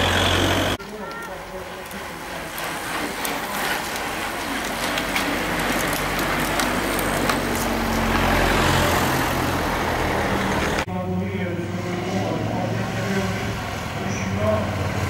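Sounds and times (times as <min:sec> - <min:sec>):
bicycles passing close by: 0:00.0 - 0:15.0
motor vehicle engine running: 0:00.0 - 0:15.0.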